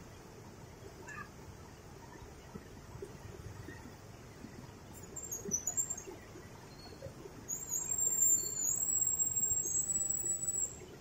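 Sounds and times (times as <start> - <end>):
high thin whistle: 7.5 - 10.8.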